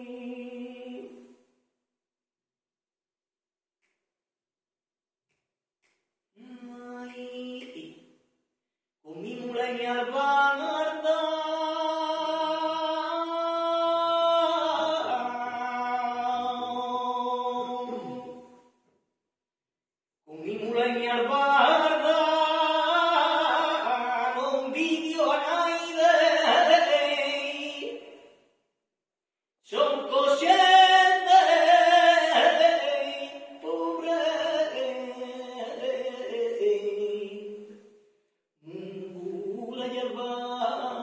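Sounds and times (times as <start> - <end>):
man singing flamenco: 20.4 - 28.1, 29.7 - 37.6.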